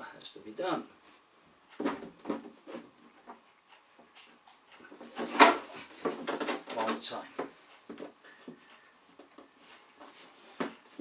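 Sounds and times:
board panel knocking and rustling: 5.0s - 8.1s.

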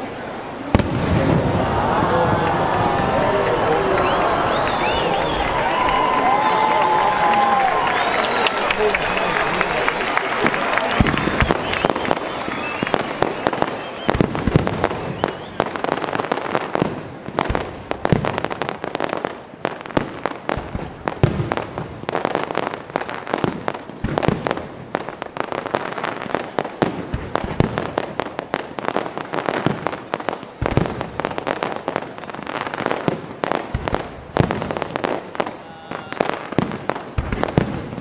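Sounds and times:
fireworks bangs: 0.0s - 38.0s
heavy firework boom: 0.7s - 3.1s.

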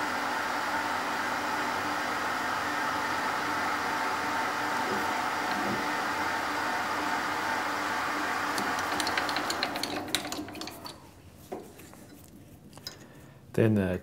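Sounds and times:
metal lathe running: 1.1s - 11.6s.

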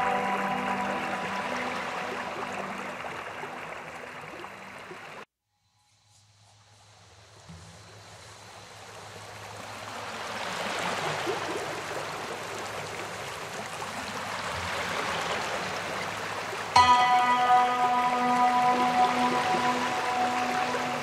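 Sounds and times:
music: 0.0s - 4.4s, 16.8s - 21.0s
rushing water: 0.0s - 5.3s, 7.5s - 21.0s.

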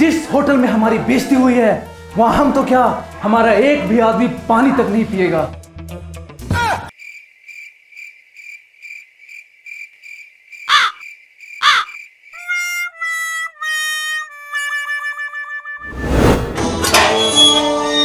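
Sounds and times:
cricket chirp sound effect: 7.0s - 12.4s
swooshes: 15.8s - 16.8s.

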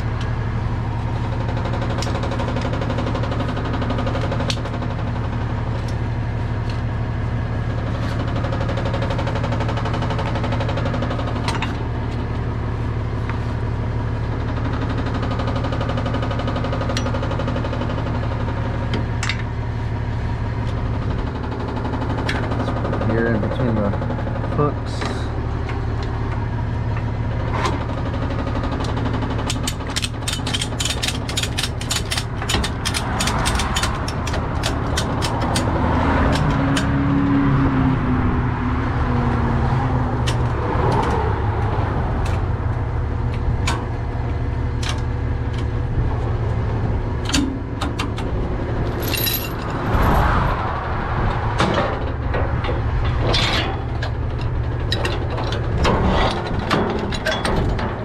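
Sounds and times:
diesel truck idling: 0.0s - 36.8s, 37.7s - 55.9s
metallic clicks and clanks: 28.8s - 36.9s, 47.2s - 50.1s, 51.6s - 58.0s.

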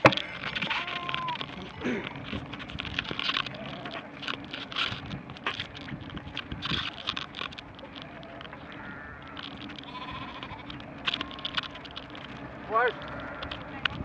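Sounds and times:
scattered clicks: 0.0s - 14.0s
steady road noise: 0.0s - 14.0s
sheep bleating: 0.6s - 2.0s, 8.2s - 11.9s, 12.7s - 13.8s.

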